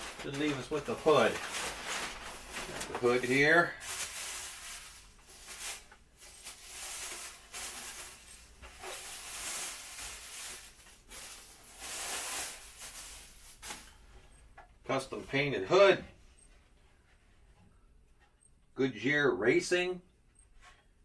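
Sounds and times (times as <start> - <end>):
packaging rustling: 0.0 - 14.0.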